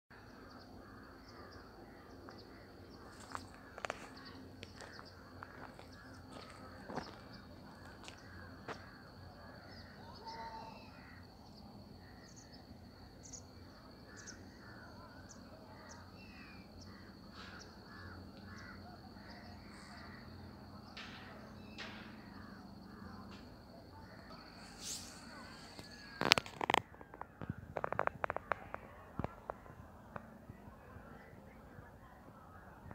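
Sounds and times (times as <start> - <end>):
birds calling: 0.4 - 29.7
crows cawing: 0.8 - 11.3, 15.8 - 23.3.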